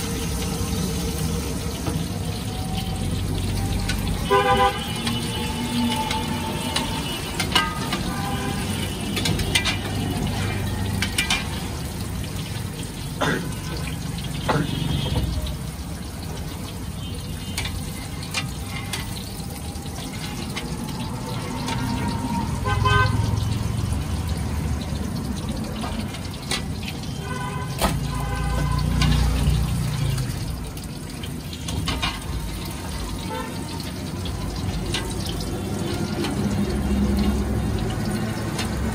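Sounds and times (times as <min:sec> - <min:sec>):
oil sizzling and bubbling: 0:00.0 - 0:38.9
vehicle horns honking: 0:04.2 - 0:10.1, 0:14.3 - 0:15.4, 0:22.5 - 0:23.4, 0:27.1 - 0:29.4, 0:33.2 - 0:33.7
metal spoon clinking and scraping: 0:09.1 - 0:11.8, 0:17.6 - 0:20.8.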